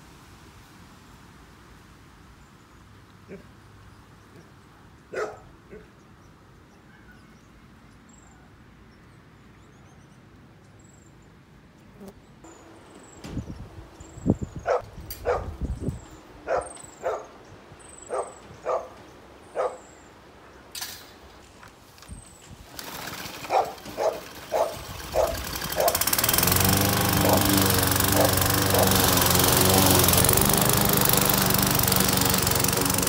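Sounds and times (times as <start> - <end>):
small birds chirping: 2.4 - 20.8
dog barking: 5.1 - 5.9, 14.7 - 15.5, 16.4 - 17.3, 18.1 - 19.0, 19.6 - 19.8, 23.5 - 26.0.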